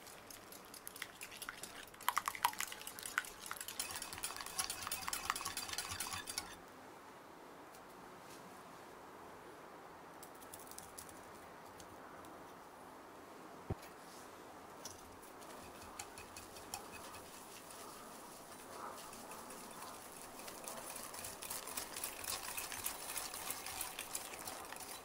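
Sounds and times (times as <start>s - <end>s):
crumbs ticking into glass bowl: 0.0s - 6.6s, 15.5s - 25.0s
wire whisk stirring in glass bowl: 0.0s - 6.6s, 15.4s - 25.0s.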